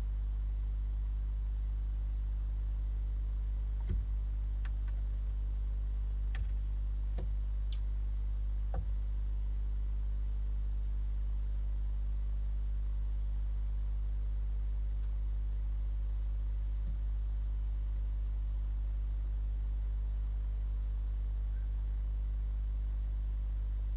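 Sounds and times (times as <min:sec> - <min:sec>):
low electrical hum: 0:00.0 - 0:23.9
faint clicks and ticks: 0:03.8 - 0:05.4, 0:06.2 - 0:08.0.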